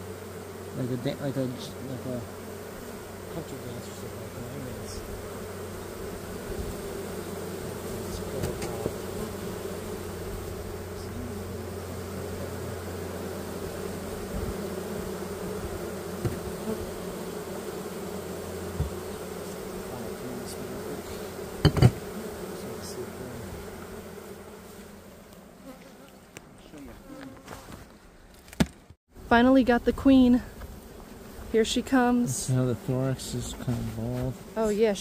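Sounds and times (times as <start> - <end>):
honeybees buzzing: 0.0 - 35.0
quick thumps: 21.6 - 22.1.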